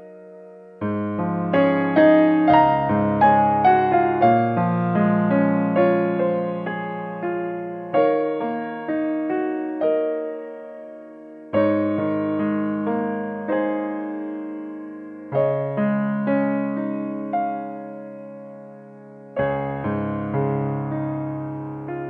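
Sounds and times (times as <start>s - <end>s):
solo piano music: 0.0s - 22.0s.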